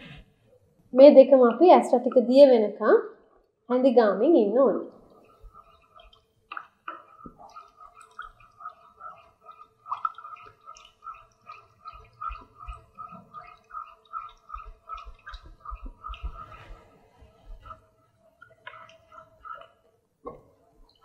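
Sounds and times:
liquid sloshing in saucepan: 4.9s - 21.0s.

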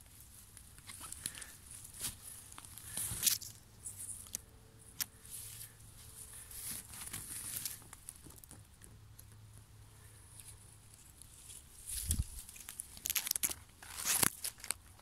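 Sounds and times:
twigs snapping: 11.9s - 15.0s.

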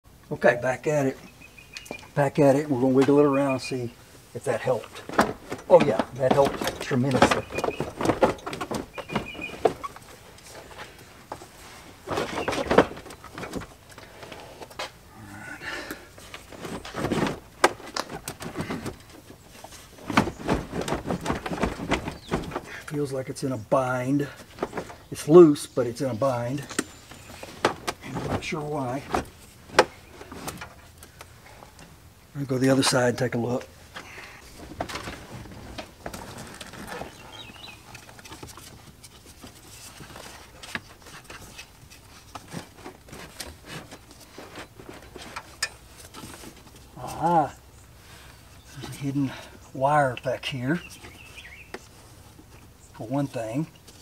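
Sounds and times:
rustling: 0.9s - 54.0s
plastic dashboard creaking and knocking: 5.0s - 10.2s, 20.0s - 22.8s.

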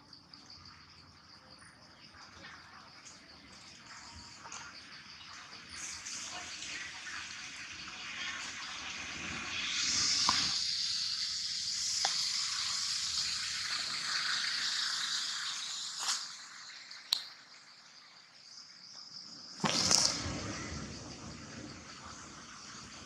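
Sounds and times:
insects buzzing: 0.0s - 23.0s.

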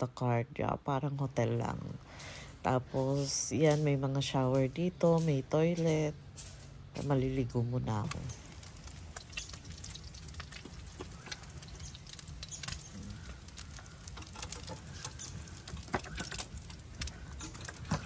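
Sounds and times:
eggs frying crackling and spitting: 6.3s - 18.0s.

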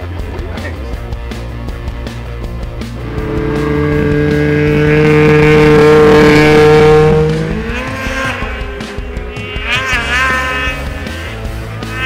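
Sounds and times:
snowmobile engine passing by: 3.0s - 12.0s.

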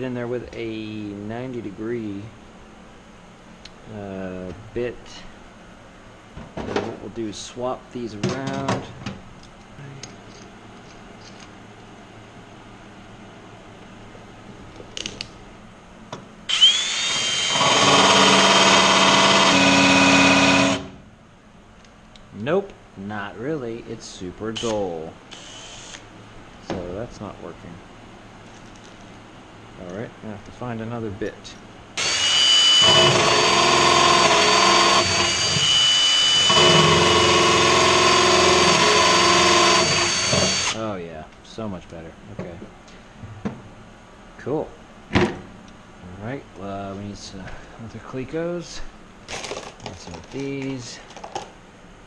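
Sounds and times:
cordless drill whine: 16.5s - 20.9s, 25.3s - 26.0s, 32.0s - 40.8s
drill clicks: 16.5s - 20.9s, 32.0s - 40.8s.

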